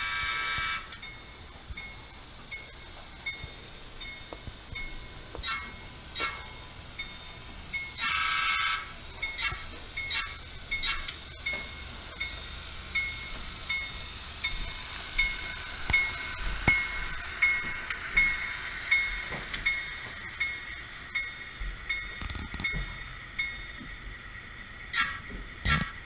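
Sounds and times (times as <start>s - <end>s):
model train horn blast: 0.0s - 1.0s, 8.0s - 8.9s
model train running: 0.0s - 26.0s.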